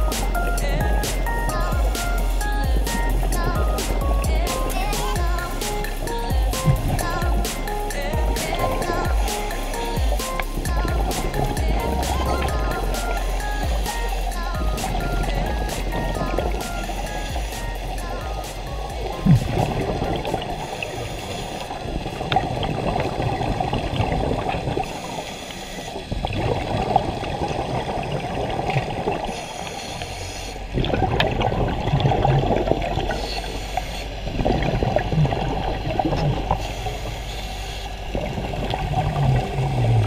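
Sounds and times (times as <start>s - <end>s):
scuba exhalation bubbles gurgling: 0.0s - 40.0s.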